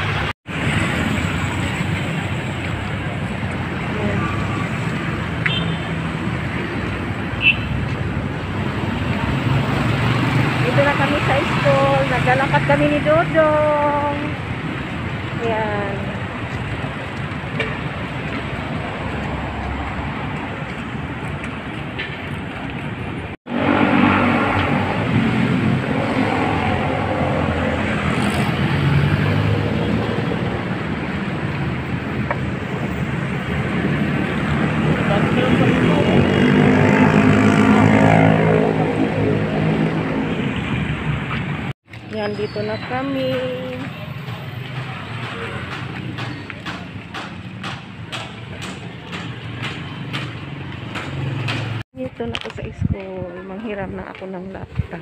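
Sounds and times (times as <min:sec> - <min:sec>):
highway traffic rumble: 0:00.0 - 0:55.0
passing engine: 0:22.7 - 0:41.8.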